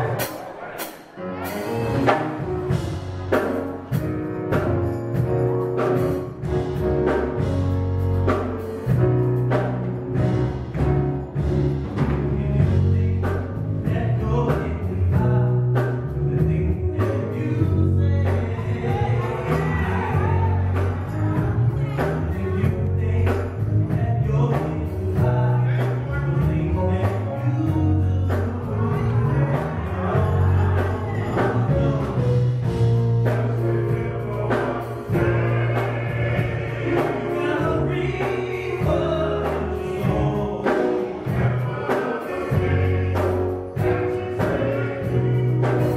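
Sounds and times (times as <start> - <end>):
live band playing: 0.0 - 45.9
male vocal group singing in harmony: 12.0 - 45.9.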